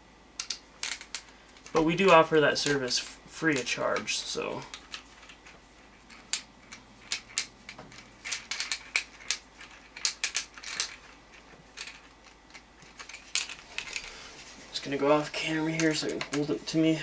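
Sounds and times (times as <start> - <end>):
small metal parts clicking: 0.4 - 2.8, 3.5 - 14.1.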